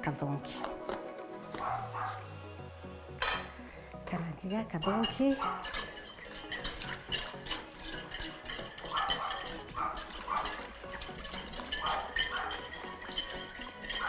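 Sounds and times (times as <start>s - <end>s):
dog barking: 1.6s - 2.2s, 8.9s - 10.5s
utensil clinking against pan: 4.5s - 14.0s.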